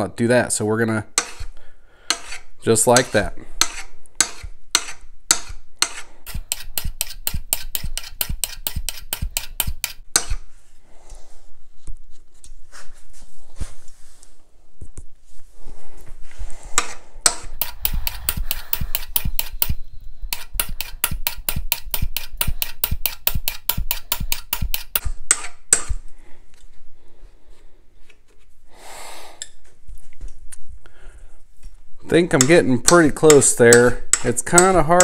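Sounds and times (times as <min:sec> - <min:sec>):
steel burnisher scraping metal edge: 0:01.1 - 0:10.4, 0:16.8 - 0:25.9.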